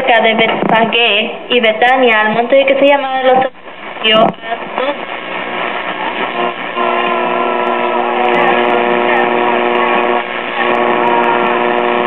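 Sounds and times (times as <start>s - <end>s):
radio held tones: 3.7s - 12.0s
voice on radio wavering: 4.1s - 12.0s.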